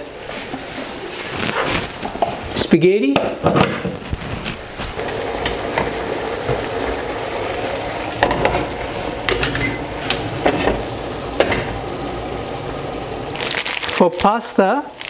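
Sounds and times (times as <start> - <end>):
sauce sizzling in a frying pan: 4.9 - 15.0.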